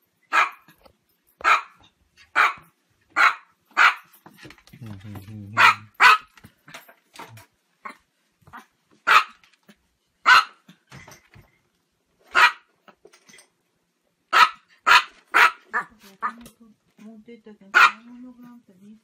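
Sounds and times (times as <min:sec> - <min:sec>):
small dog barking: 0:00.3 - 0:00.7, 0:01.4 - 0:04.1, 0:05.6 - 0:06.3, 0:07.8 - 0:09.4, 0:10.2 - 0:10.7, 0:12.3 - 0:12.7, 0:14.3 - 0:16.4, 0:17.7 - 0:18.1.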